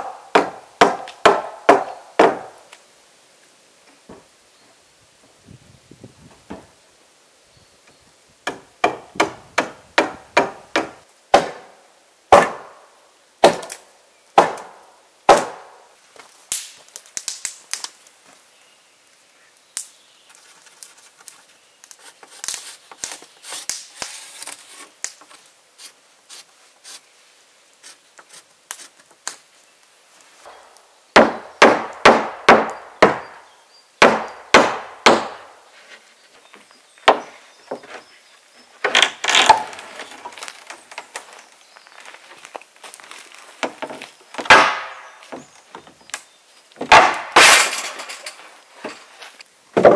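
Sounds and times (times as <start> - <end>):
hand tool striking wood: 0.0 - 2.5, 43.6 - 45.5, 46.8 - 49.0
faint rustling and handling: 48.0 - 49.5.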